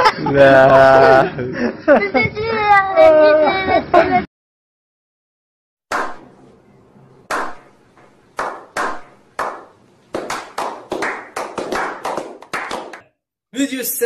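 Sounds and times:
men clapping in unison: 0:08.4 - 0:13.1.

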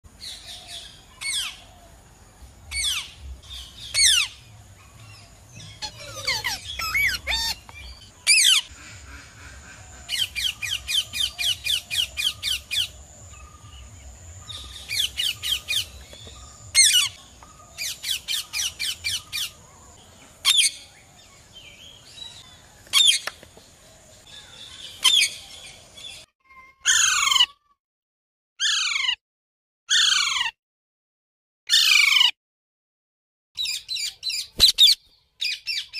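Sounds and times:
parakeet squawking: 0:05.7 - 0:09.4, 0:28.6 - 0:29.2, 0:29.9 - 0:30.5.

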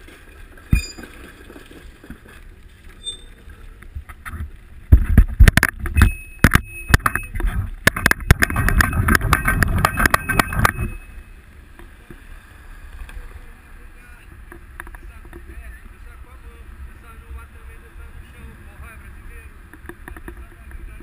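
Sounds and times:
bicycle rattling and knocking: 0:00.0 - 0:02.4, 0:04.0 - 0:11.1.

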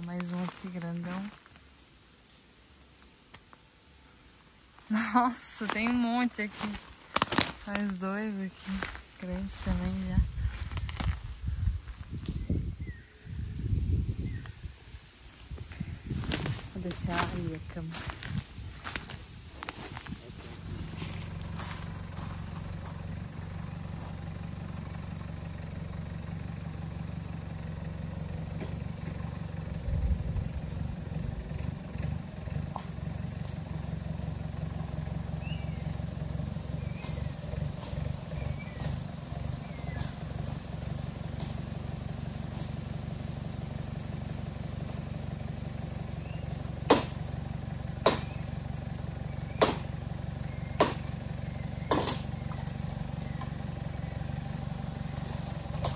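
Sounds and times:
vehicle engine running: 0:00.0 - 0:55.9
sharp knocks: 0:46.9 - 0:47.2.

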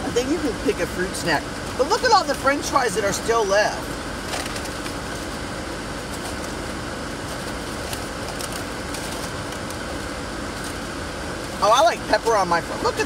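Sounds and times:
car air conditioning blowing: 0:00.0 - 0:13.0
car engine idling: 0:00.0 - 0:13.0
paper bag crinkling: 0:04.2 - 0:10.8.

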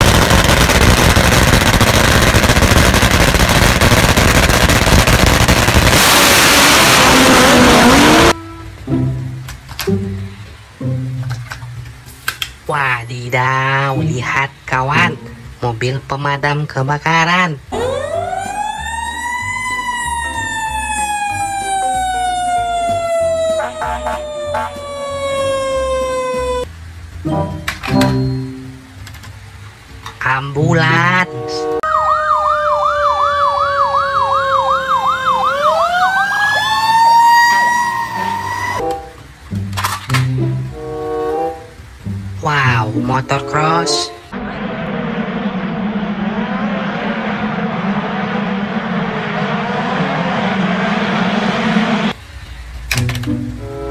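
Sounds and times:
motorcycle engines crackling: 0:00.0 - 0:08.4
fire engine siren winding up: 0:05.9 - 0:08.4, 0:17.7 - 0:26.7, 0:31.8 - 0:39.2.

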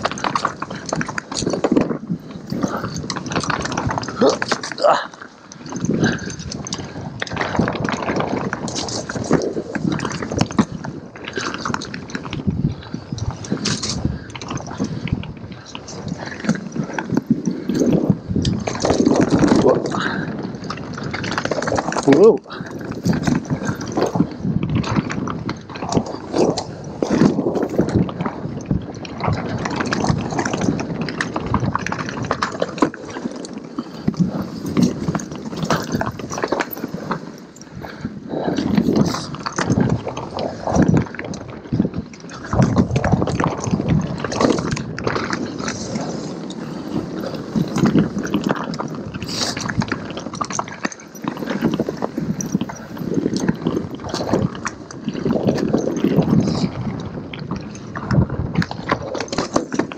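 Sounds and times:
bike rattling and clattering: 0:00.0 - 0:59.9
tyres crunching over stones: 0:00.0 - 0:59.9.

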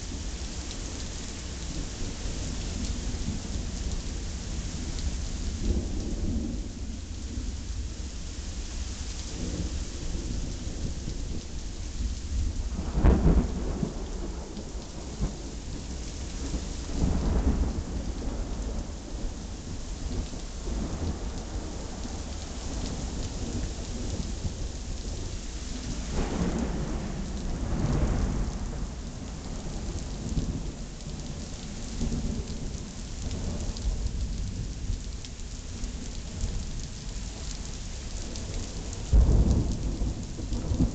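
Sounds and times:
steady rain falling: 0:00.0 - 0:40.9
thunder rumbling: 0:09.4 - 0:24.8, 0:25.8 - 0:31.0, 0:38.2 - 0:40.9.

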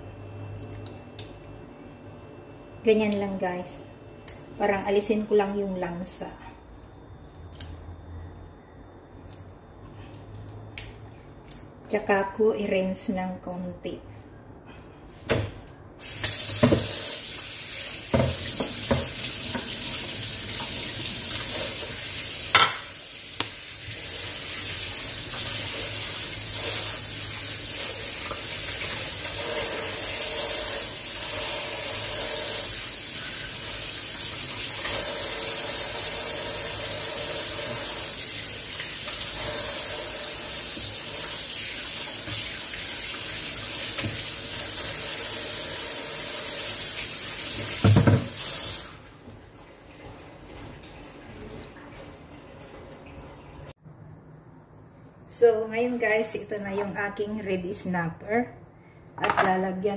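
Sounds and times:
tap running into sink: 0:16.2 - 0:17.0, 0:18.1 - 0:20.0, 0:43.8 - 0:44.3, 0:47.5 - 0:48.7.

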